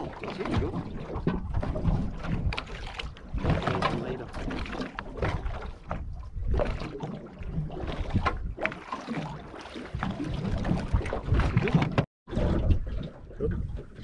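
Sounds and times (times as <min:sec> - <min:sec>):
wind on microphone: 0:00.0 - 0:08.7, 0:09.9 - 0:14.0
water splashing against boat hull: 0:00.0 - 0:14.0.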